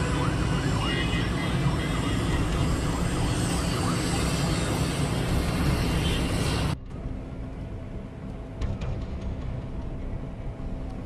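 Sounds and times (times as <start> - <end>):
city traffic noise: 0.0 - 6.8.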